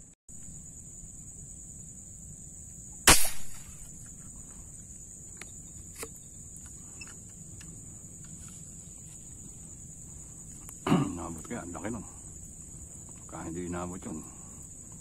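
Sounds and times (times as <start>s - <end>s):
high-pitched insect drone: 0.3s - 15.0s
spear gun snap: 3.1s - 3.8s.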